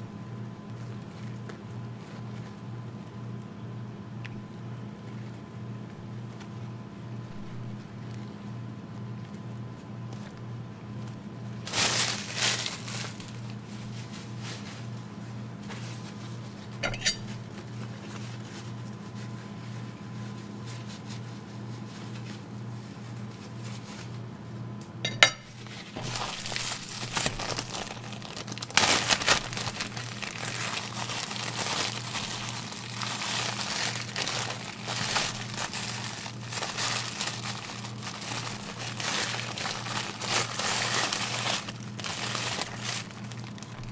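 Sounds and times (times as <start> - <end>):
steady low hum: 0.0 - 43.9
plastic bag crinkling: 11.6 - 14.9, 25.6 - 43.9
china plate clinks: 16.8 - 17.3.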